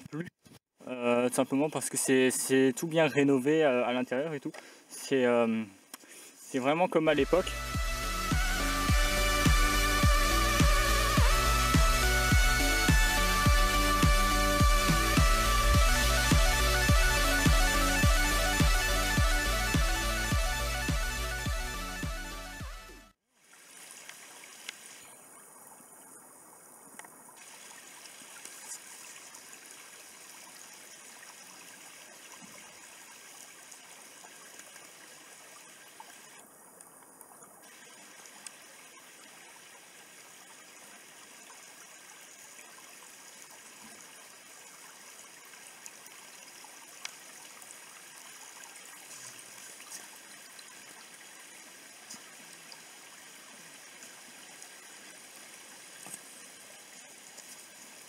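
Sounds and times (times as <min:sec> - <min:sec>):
brook trickling over stones: 0:01.2 - 0:20.5, 0:23.3 - 0:58.0
small ticks: 0:26.9 - 0:27.2, 0:36.1 - 0:37.6, 0:38.4 - 0:38.7.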